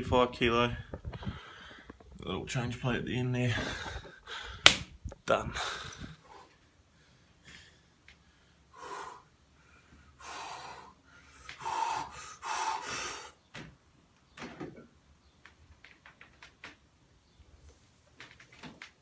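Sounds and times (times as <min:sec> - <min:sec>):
man forceful bracing breaths: 0:05.4 - 0:13.4.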